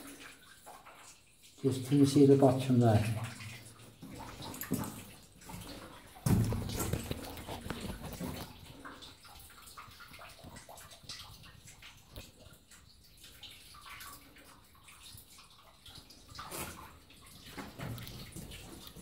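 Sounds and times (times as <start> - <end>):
water trickling and dripping: 0.0 - 19.0.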